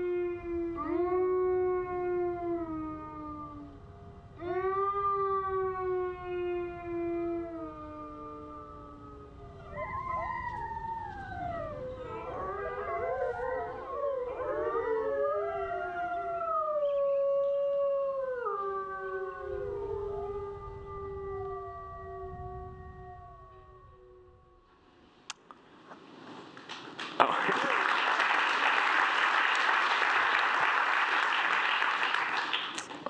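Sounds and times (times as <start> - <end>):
wolves howling: 0.0 - 24.7.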